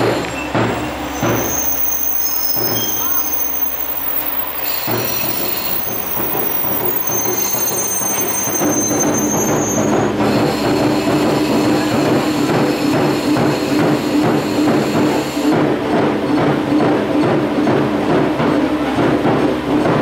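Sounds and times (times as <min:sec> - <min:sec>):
high brake squeal: 0:00.0 - 0:15.6.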